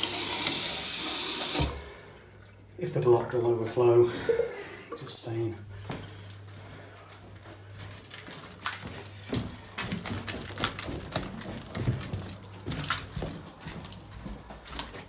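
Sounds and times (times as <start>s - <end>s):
footsteps on carpeted stairs: 5.7s - 15.0s.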